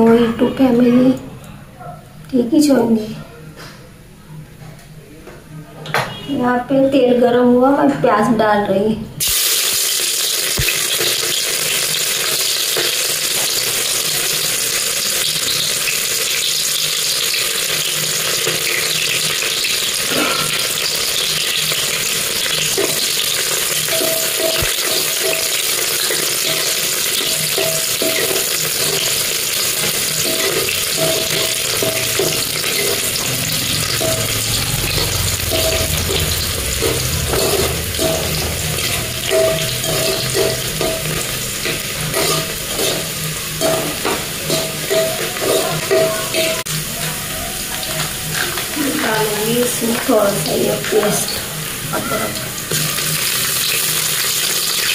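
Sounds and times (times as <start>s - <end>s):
onions sizzling in hot oil: 9.2s - 54.9s
metal spoon scraping pot: 22.7s - 46.6s.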